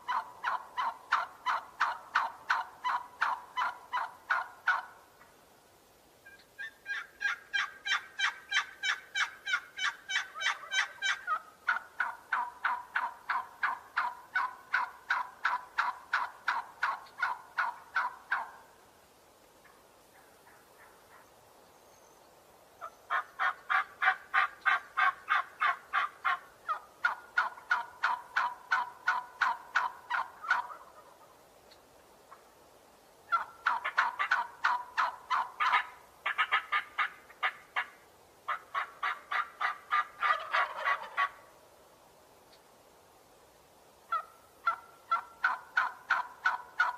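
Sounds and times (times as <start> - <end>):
turkeys gobbling: 0.0 - 5.3, 6.2 - 18.7, 22.8 - 31.4, 33.3 - 41.5, 44.1 - 46.9.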